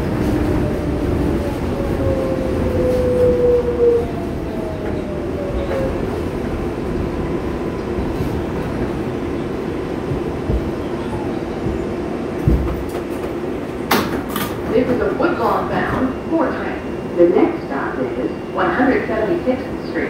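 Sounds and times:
subway wheels rumbling on track: 0.0 - 20.0.

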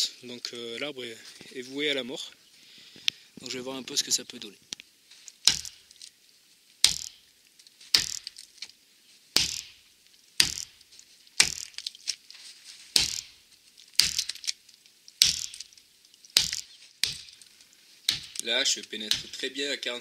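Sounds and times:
axe chopping into wood: 5.4 - 5.9, 6.8 - 7.3, 7.9 - 8.5, 9.4 - 9.8, 10.4 - 10.8, 11.4 - 12.0, 12.9 - 13.4, 14.0 - 14.5, 15.2 - 17.4, 18.1 - 19.4.

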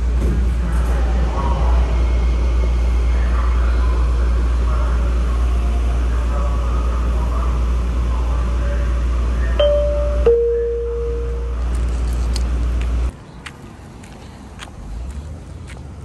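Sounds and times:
faint passenger voices: 0.0 - 12.5
train interior rumble: 0.0 - 16.0
two-note falling chime: 9.6 - 11.6.

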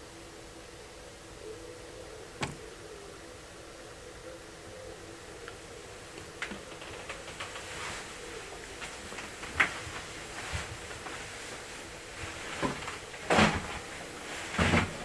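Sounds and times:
amplified hiss: 0.0 - 6.4
loud thud: 2.4 - 2.6
knocks and clunks: 2.4 - 2.7.

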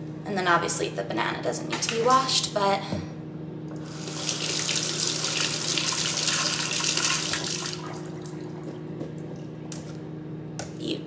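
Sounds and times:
faucet water running on berries: 3.8 - 8.4.

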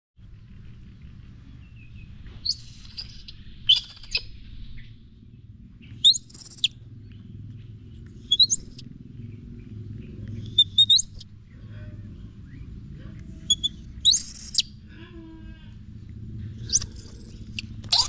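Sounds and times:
low background rumble: 0.2 - 18.0
baby monkey squealing: 2.4 - 4.2, 6.0 - 6.7, 8.3 - 8.8, 10.5 - 11.3, 13.5 - 14.7, 16.7 - 18.0.

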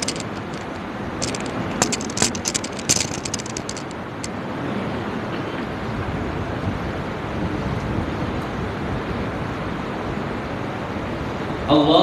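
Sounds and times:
people moving and rustling: 0.0 - 5.6
electric fans running: 0.0 - 12.0.

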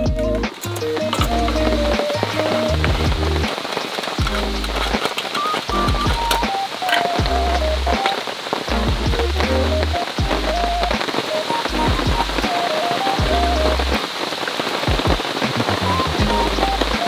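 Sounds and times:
simple melody over low bass: 0.0 - 0.5, 1.1 - 3.5, 5.7 - 6.4, 7.2 - 8.0, 8.7 - 11.0, 11.7 - 12.5, 13.2 - 14.0, 15.8 - 17.0
rain falling: 0.0 - 17.0.

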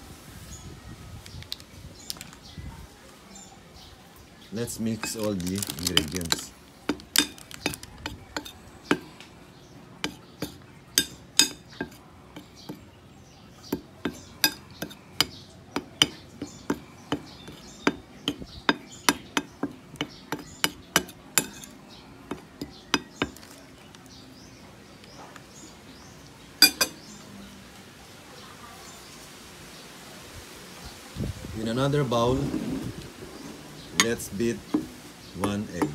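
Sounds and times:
metal spoon clinking on ceramic bowl: 10.0 - 12.5, 17.5 - 21.7, 26.6 - 27.0.

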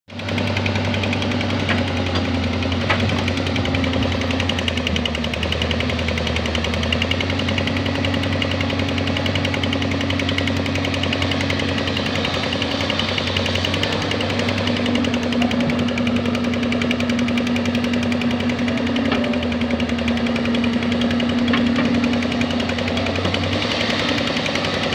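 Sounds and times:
excavator diesel engine clattering: 0.1 - 24.9.

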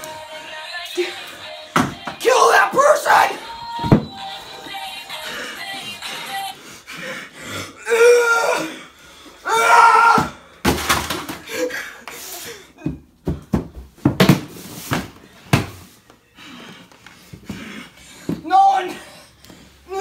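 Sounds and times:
person crying out: 7.8 - 8.7, 9.4 - 10.3.

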